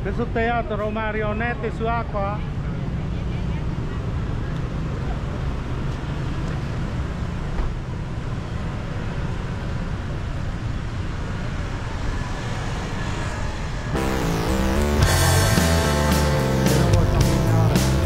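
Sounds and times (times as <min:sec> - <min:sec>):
street traffic noise: 0:00.0 - 0:18.0
music: 0:14.0 - 0:18.0.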